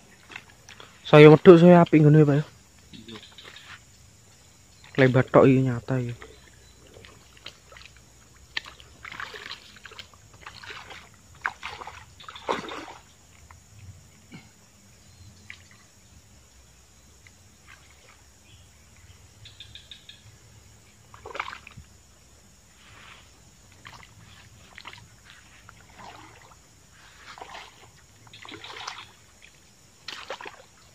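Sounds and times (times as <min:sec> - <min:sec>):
muddy water splashing: 0:00.0 - 0:02.4, 0:04.8 - 0:14.7, 0:15.3 - 0:16.4, 0:17.2 - 0:19.0, 0:20.8 - 0:22.0, 0:22.7 - 0:30.9.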